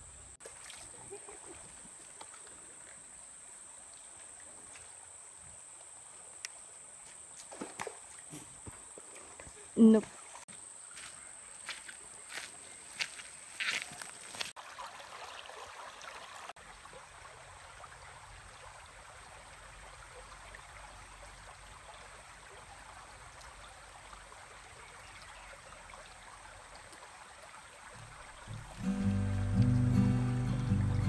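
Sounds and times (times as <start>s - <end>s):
creek trickling: 0.3s - 31.0s
footsteps crunching on gravel: 10.5s - 14.6s.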